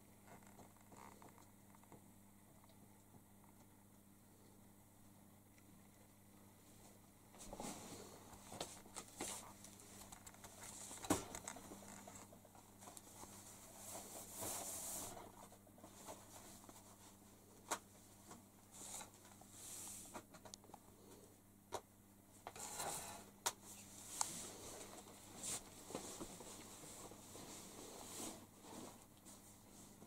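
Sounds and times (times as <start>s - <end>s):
faint low hum: 0.0s - 30.0s
faint rustling and scraping: 5.9s - 21.4s, 22.3s - 30.0s.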